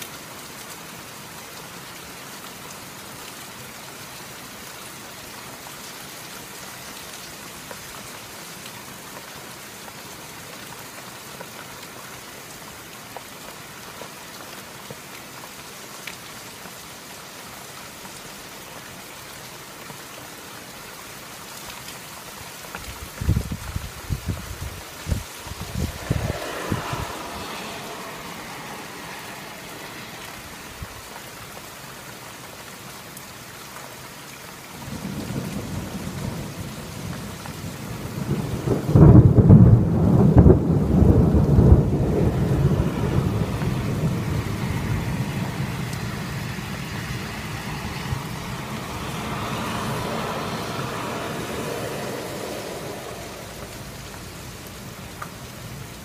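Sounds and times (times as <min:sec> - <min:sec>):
steady rain falling: 0:00.0 - 0:56.0
thunder rolling: 0:23.2 - 0:31.1, 0:34.9 - 0:54.2.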